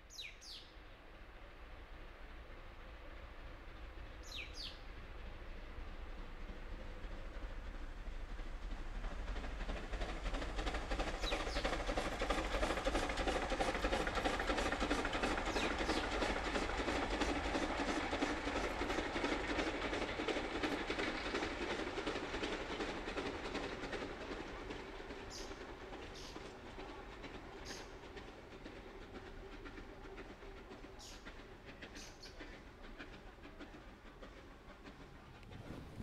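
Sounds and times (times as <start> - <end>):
steam locomotive working hard: 0.1 - 36.0
wheels clattering on rails: 8.3 - 36.0.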